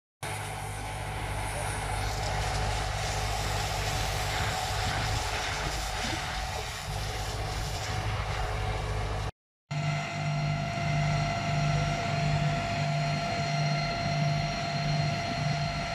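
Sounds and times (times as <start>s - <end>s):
water spraying from hose: 0.2s - 9.3s
fire truck engine and pump: 0.2s - 15.9s.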